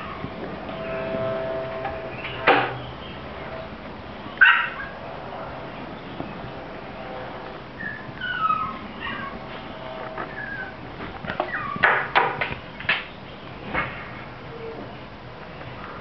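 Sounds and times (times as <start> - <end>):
dog yipping: 4.4 - 5.0, 7.8 - 9.4, 10.3 - 10.7, 11.5 - 12.0
dog whining: 7.8 - 9.6, 10.2 - 10.8, 11.4 - 12.0.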